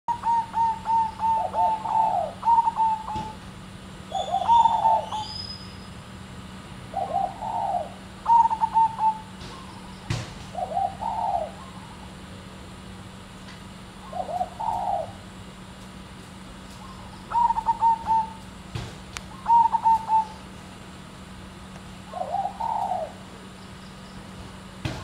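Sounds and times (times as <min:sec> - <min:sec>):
dove cooing: 0:00.1 - 0:03.4, 0:04.1 - 0:05.4, 0:06.9 - 0:12.3, 0:13.9 - 0:15.5, 0:16.8 - 0:18.6, 0:19.3 - 0:20.6, 0:22.0 - 0:23.6.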